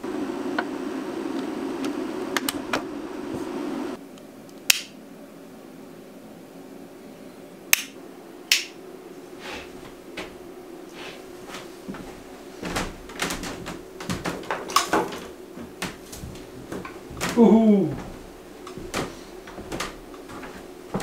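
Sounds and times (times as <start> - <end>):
sharp clicks: 7.7 - 8.8.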